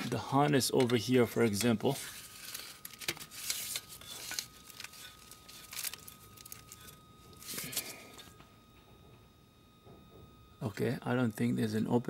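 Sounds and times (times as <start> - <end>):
plastic loom rustling and crinkling: 0.8 - 7.9.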